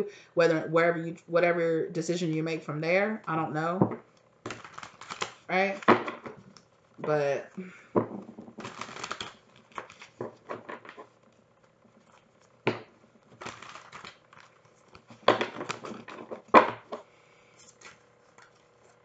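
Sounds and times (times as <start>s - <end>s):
cards shuffling and rustling: 4.5s - 6.6s, 8.1s - 19.0s.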